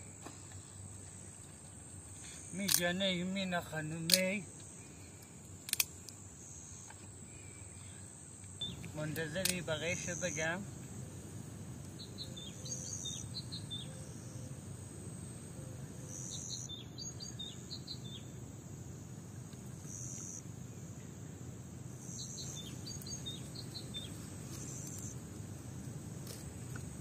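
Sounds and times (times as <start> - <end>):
crickets chirping: 0.0 - 27.0
bird chirps: 8.6 - 8.9, 12.0 - 14.5, 16.0 - 18.3, 22.1 - 25.2.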